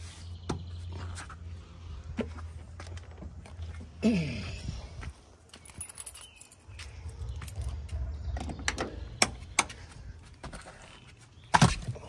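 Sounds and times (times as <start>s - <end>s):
keys jangling: 5.5s - 7.8s.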